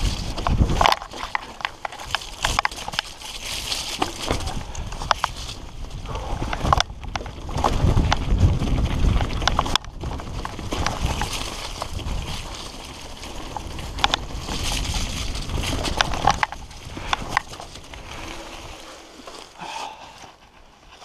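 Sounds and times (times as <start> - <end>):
bike rattling over bumps: 0.0 - 21.0
tyre and wind rumble: 0.0 - 21.0.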